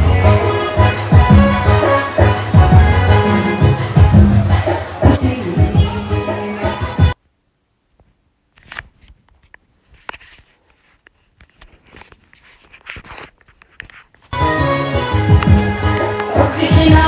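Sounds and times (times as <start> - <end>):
music: 0.0 - 7.2, 14.4 - 17.0.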